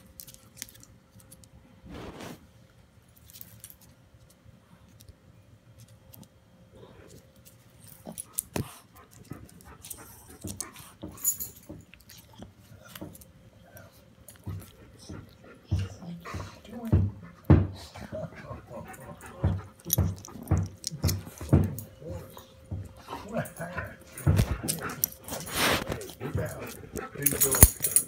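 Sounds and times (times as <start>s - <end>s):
dog claws clicking on wooden floor: 18.9s - 23.0s, 24.0s - 28.0s.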